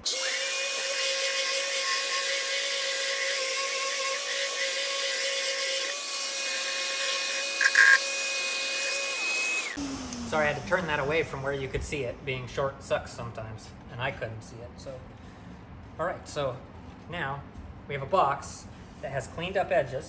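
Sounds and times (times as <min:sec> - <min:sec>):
orbital sander on wood: 0:00.0 - 0:11.1
dust extractor: 0:00.0 - 0:11.4.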